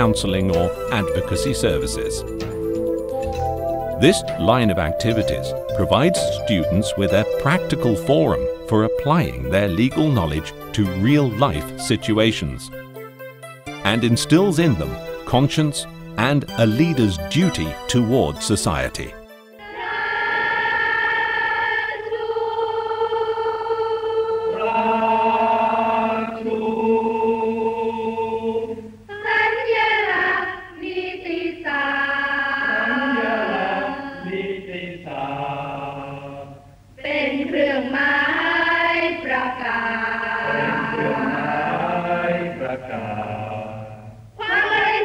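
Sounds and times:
choir singing slow song: 19.6s - 45.0s.

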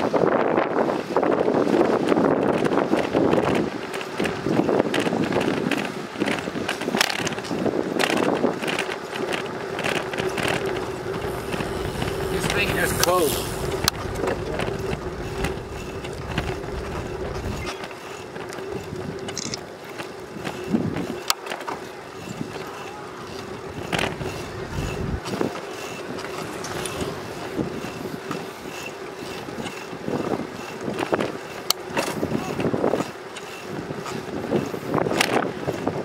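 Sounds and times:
bicycle tyres and drivetrain humming: 0.0s - 36.0s
wind buffeting microphone: 0.0s - 36.0s
bicycle clicks and rattles: 0.9s - 36.0s.

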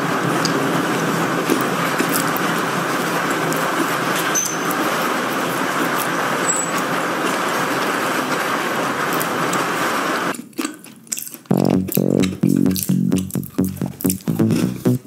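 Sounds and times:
storm wind and rain: 0.0s - 10.3s.

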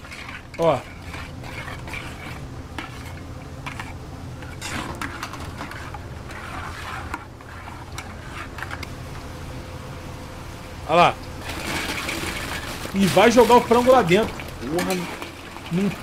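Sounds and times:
utensils scraping a wok: 0.0s - 8.9s.

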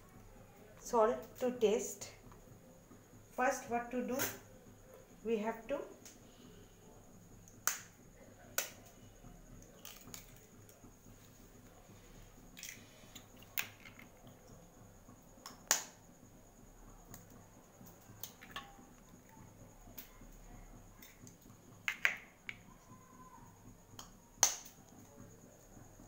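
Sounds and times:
eggs tapped on steel plate: 21.8s - 22.6s.

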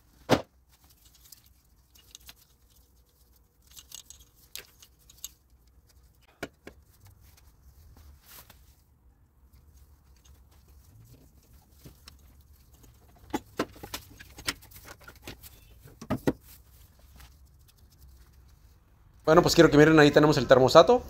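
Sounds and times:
wrench and metal parts clicking: 0.9s - 6.0s.

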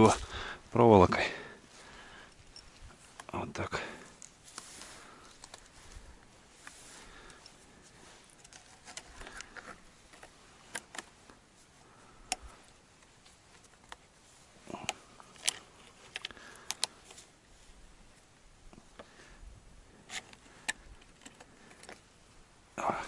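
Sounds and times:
wire twisting clicks and scrapes: 4.0s - 6.0s, 6.6s - 11.4s, 14.7s - 17.3s, 19.9s - 22.1s.

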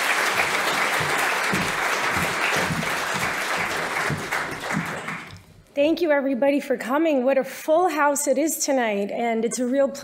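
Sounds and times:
audience applauding: 0.0s - 5.5s.

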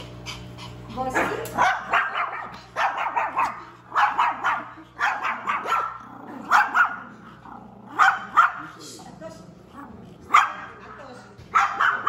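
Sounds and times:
small dogs yapping: 0.4s - 7.2s, 7.9s - 8.8s, 11.5s - 12.0s.

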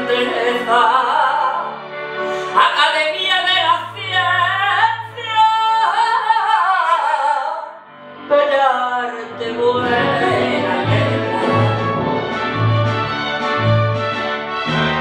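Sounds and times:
woman singing wordless melody: 0.0s - 1.8s, 2.6s - 11.8s.

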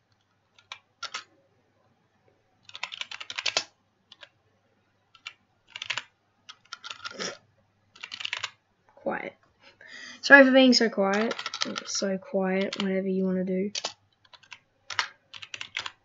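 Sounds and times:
keyboard typing: 0.0s - 1.3s, 2.6s - 4.4s, 5.1s - 8.6s, 11.0s - 13.0s, 13.7s - 16.0s.

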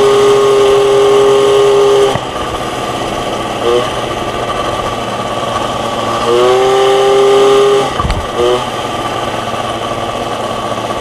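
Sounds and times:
moped engine running: 0.0s - 11.0s
horn sounding: 3.6s - 4.1s, 6.2s - 8.7s.

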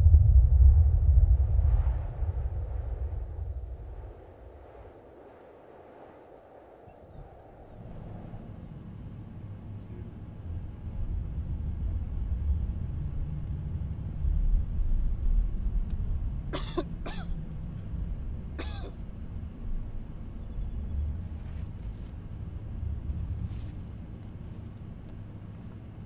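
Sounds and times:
deep rumble: 0.0s - 26.0s
person coughing: 16.6s - 17.4s, 18.6s - 19.1s.

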